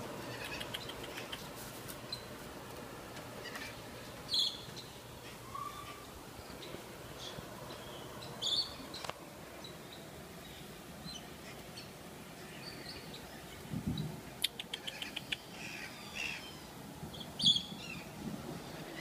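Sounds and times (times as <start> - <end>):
birds calling: 0.0 - 19.0
sharp bird clicks: 0.3 - 1.5, 14.4 - 15.5.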